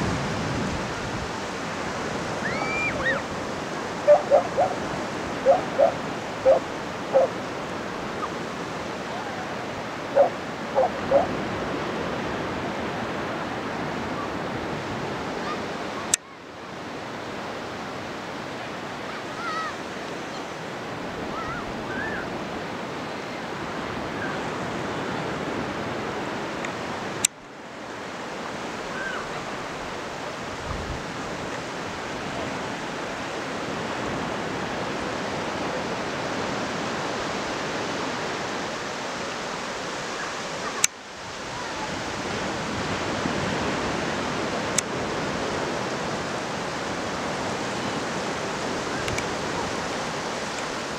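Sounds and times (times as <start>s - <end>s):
low surf on beach: 0.0s - 50.9s.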